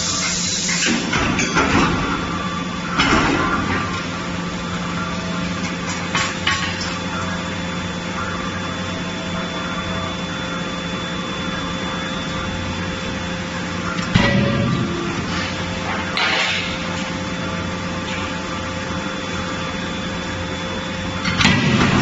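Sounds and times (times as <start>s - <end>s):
machinery hum: 0.0s - 22.0s
forging hammer blow ringing: 14.0s - 15.5s.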